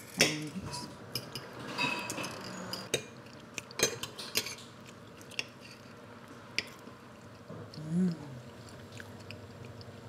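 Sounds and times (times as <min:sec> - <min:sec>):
cutlery clinking on plates: 0:00.1 - 0:03.2, 0:03.8 - 0:04.7.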